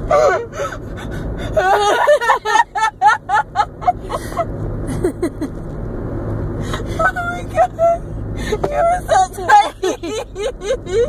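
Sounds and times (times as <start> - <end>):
road rumble inside car: 0.0 - 11.0
girl laughing: 0.1 - 5.6, 9.0 - 11.0.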